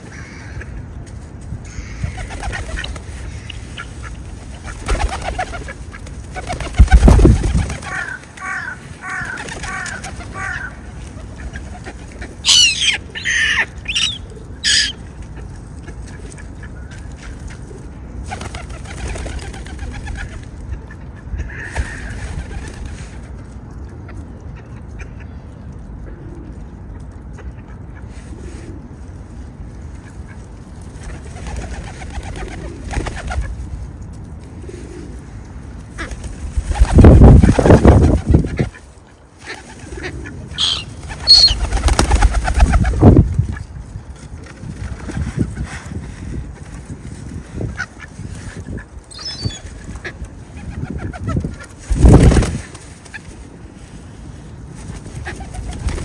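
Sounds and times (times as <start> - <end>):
steady low background noise: 0.0 - 56.0
birds calling: 1.6 - 17.3, 36.0 - 43.6, 47.6 - 51.5.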